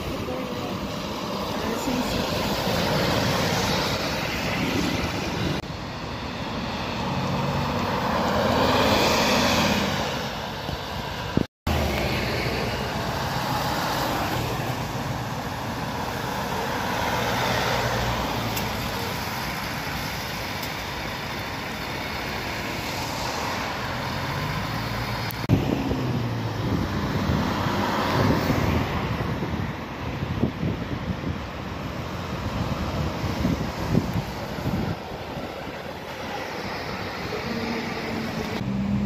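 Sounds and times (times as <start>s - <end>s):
bus diesel engines driving past: 0.0s - 39.0s
road traffic noise: 0.0s - 39.0s
wind noise on microphone: 9.9s - 11.5s, 25.3s - 37.3s.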